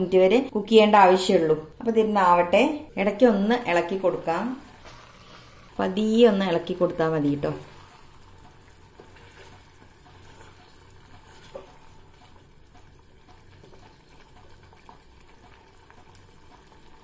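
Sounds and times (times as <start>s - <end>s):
wooden spatula stirring curry: 7.6s - 17.0s.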